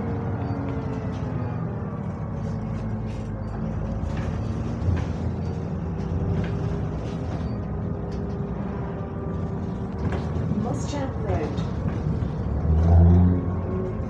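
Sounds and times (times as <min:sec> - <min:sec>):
bus body rattling: 0:00.0 - 0:14.0
bus engine rumbling: 0:00.0 - 0:14.0.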